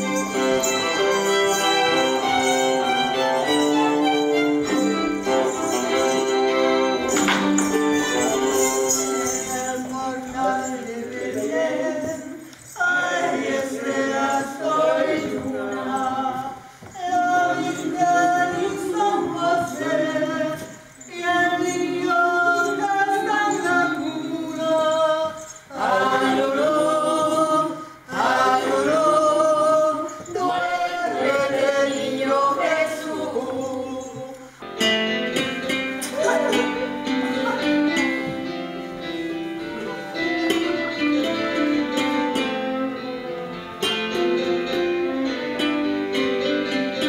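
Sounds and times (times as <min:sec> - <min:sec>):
unaccompanied ensemble singing: 0:00.0 - 0:34.6, 0:36.0 - 0:38.4.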